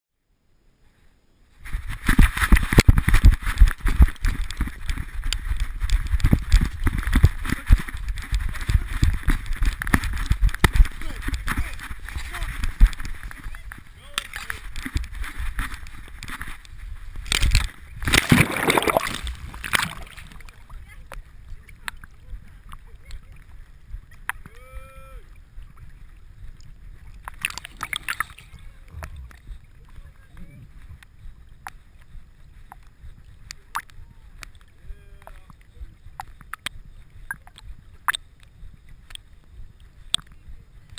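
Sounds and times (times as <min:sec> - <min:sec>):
steady low rumble: 0:01.5 - 0:40.9
dog paws thudding on grass: 0:01.6 - 0:21.0
water sloshing and lapping: 0:01.6 - 0:24.6, 0:25.2 - 0:40.9
water splashing: 0:01.6 - 0:40.9.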